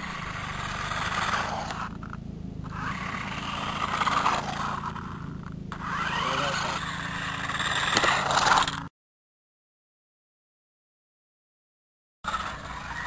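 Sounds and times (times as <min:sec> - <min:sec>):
toy car motor whirring: 0:00.0 - 0:08.9, 0:12.3 - 0:13.0
tyres rolling on concrete: 0:00.1 - 0:08.9.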